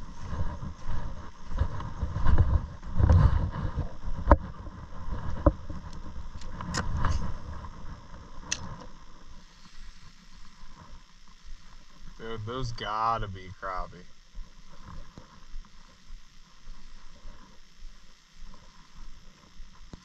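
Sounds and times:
wind rumbling on microphone: 0.0 - 20.0
sharp clicks: 8.4 - 8.9.

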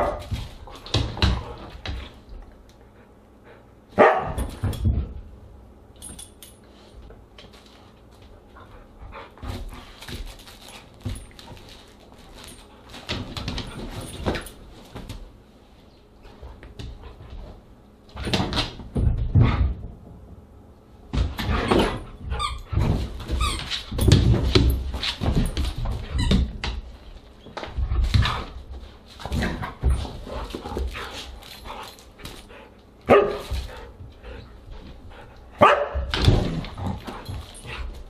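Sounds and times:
dogs scuffling and thumping: 0.0 - 2.6, 4.0 - 5.4, 6.0 - 20.3, 21.0 - 38.0.

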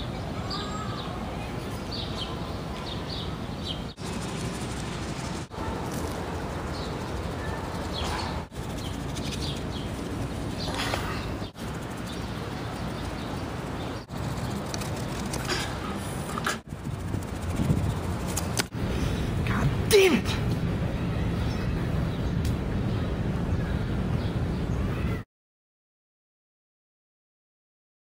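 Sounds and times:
birds chirping: 0.0 - 20.2
steady outdoor rumble: 0.0 - 25.2.

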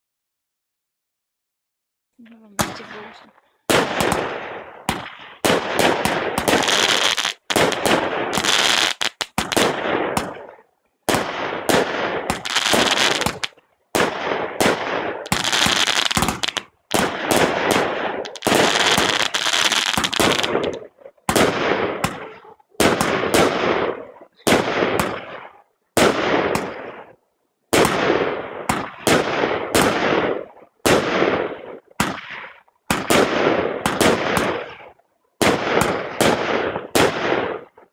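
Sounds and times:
firework crackling: 2.6 - 25.4
firework shots launching: 2.6 - 27.1, 27.7 - 37.8.

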